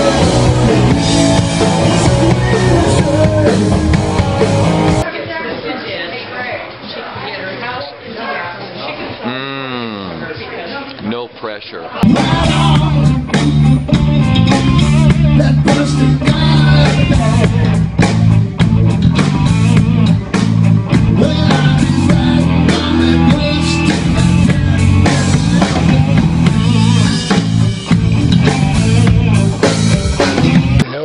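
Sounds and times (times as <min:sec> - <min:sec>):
man singing: 0:00.0 - 0:04.5, 0:12.0 - 0:18.6, 0:19.3 - 0:27.9
electric bass guitar: 0:00.0 - 0:05.0, 0:12.0 - 0:30.9
drum kit beat: 0:00.0 - 0:05.1, 0:12.0 - 0:30.8.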